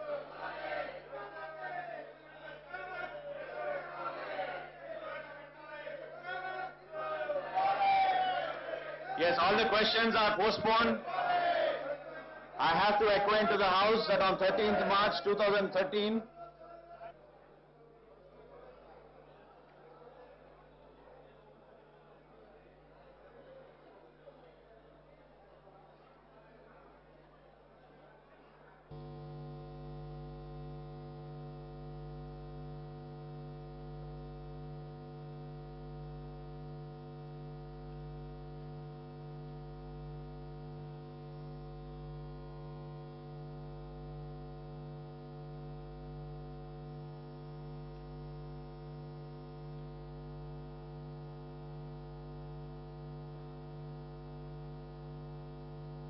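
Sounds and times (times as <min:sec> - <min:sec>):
electrical mains hum: 0:06.3 - 0:16.3, 0:28.9 - 0:56.0.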